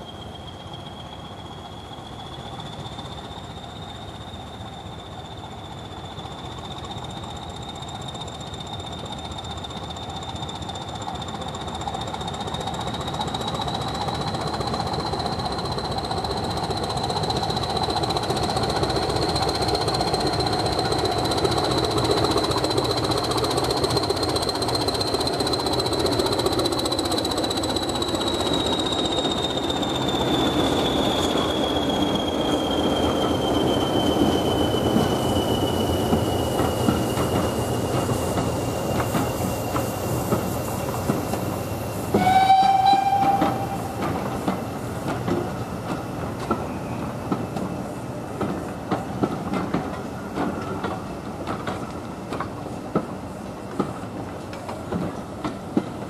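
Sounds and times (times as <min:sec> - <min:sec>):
turbocharger whistle: 0:00.0 - 0:44.1
diesel locomotive engine: 0:00.0 - 0:56.0
wheel-on-rail noise: 0:00.0 - 0:56.0.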